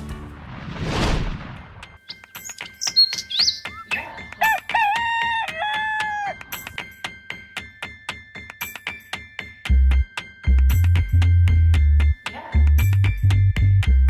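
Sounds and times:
whoosh: 0:00.3 - 0:01.9
light music with ticking beat: 0:01.8 - 0:14.0
rooster crowing: 0:04.4 - 0:06.4.

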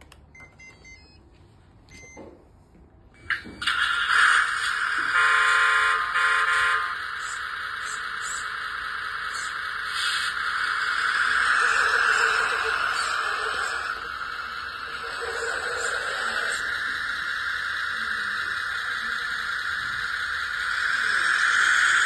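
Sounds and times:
short electronic beeps: 0:00.3 - 0:01.2, 0:01.9 - 0:02.3
electronic engine sound from speaker: 0:03.2 - 0:22.0
toy truck horn: 0:05.0 - 0:07.1.

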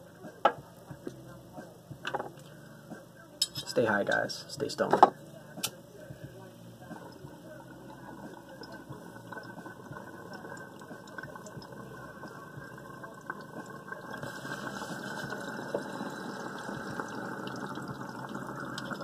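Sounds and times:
water bubbling in glass pipe: 0:06.8 - 0:19.0.

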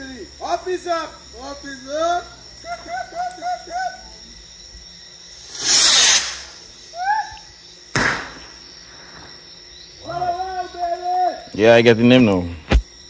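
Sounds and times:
night insects chirring: 0:00.0 - 0:13.0
firework bang: 0:05.4 - 0:06.7, 0:07.9 - 0:08.6
firework rocket whoosh: 0:05.4 - 0:06.8
short whistled calls: 0:05.4 - 0:07.5.

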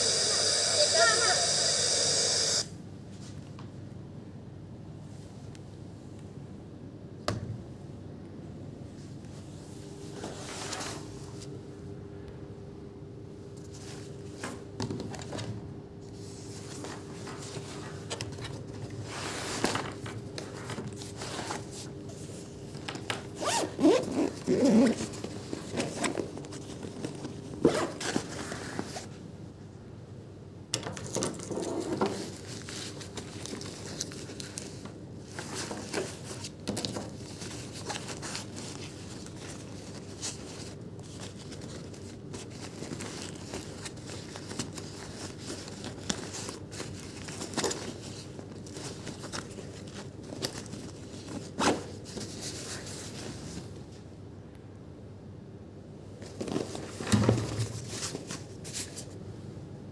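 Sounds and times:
objects rustling and scraping: 0:09.0 - 0:11.6, 0:13.5 - 0:29.3, 0:31.0 - 0:54.1, 0:56.2 - 0:59.2.

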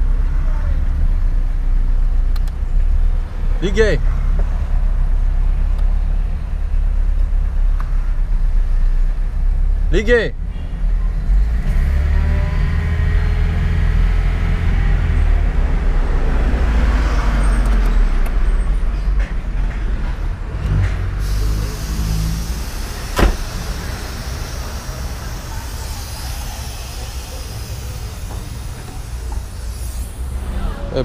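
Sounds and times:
car engine idling: 0:21.2 - 0:31.0
sharp knock: 0:23.2 - 0:23.5.

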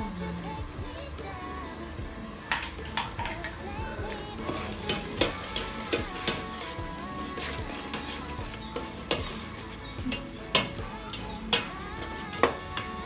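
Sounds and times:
metal spoon scraping a pot: 0:04.4 - 0:13.0.

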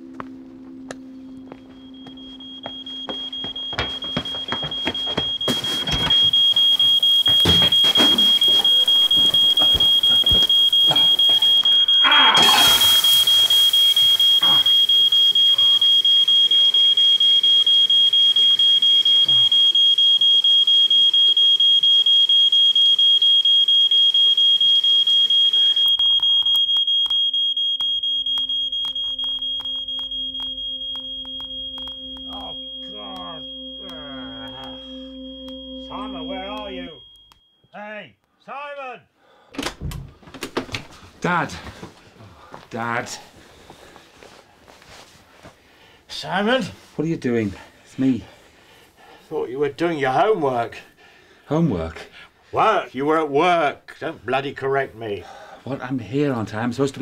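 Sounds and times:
smoke alarm beeping: 0:00.0 - 0:37.8, 0:47.5 - 0:52.3.

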